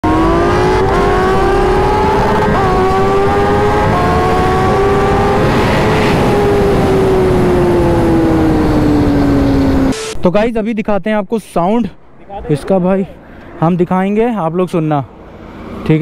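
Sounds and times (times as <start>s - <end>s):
motorcycle engine accelerating hard: 0.0s - 10.0s.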